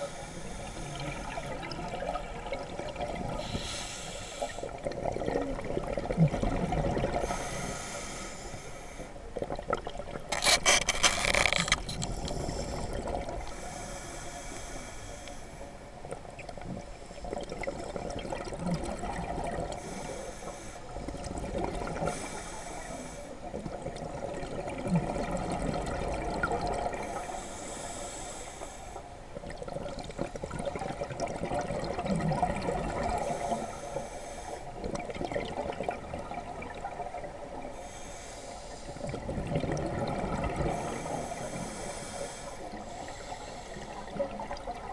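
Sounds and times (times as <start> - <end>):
underwater regulator hiss: 3.4 - 4.7, 7.2 - 9.1, 19.8 - 20.9, 22.0 - 23.4, 27.1 - 29.0, 37.7 - 39.1, 40.7 - 44.2.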